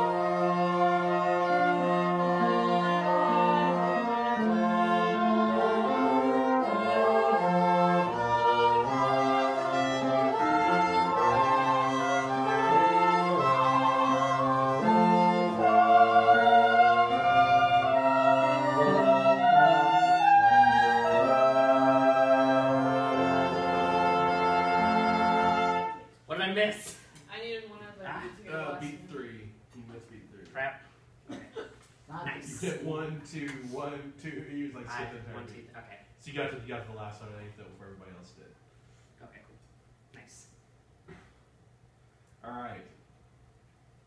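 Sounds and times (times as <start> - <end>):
chamber ensemble sustained chords: 0.0 - 26.1.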